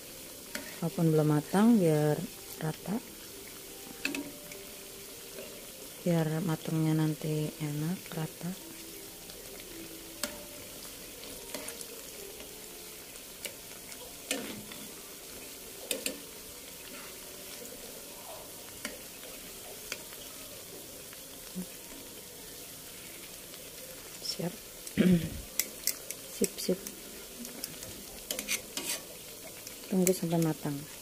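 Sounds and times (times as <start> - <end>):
fritters sizzling in oil: 0.0 - 31.0
metal tongs clicking: 4.0 - 4.3, 15.9 - 16.2.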